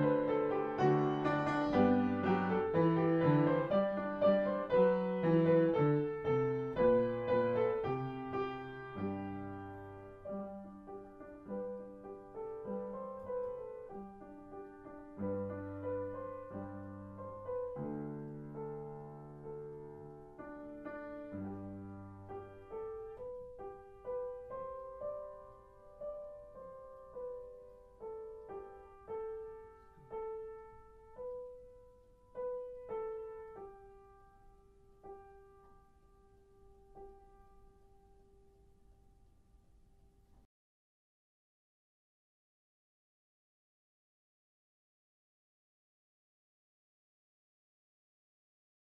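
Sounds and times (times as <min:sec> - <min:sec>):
gentle solo piano: 0:00.0 - 0:40.5.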